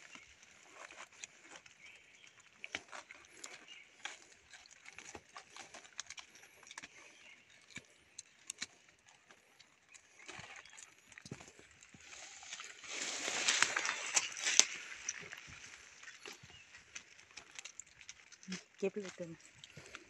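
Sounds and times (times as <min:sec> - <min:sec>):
dry leaves crackling and rustling: 0:12.0 - 0:17.8
twigs snapping: 0:12.9 - 0:20.0.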